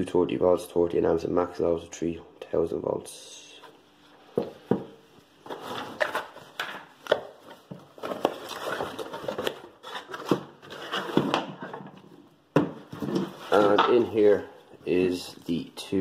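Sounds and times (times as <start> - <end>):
cardboard packaging handled: 5.4 - 14.4.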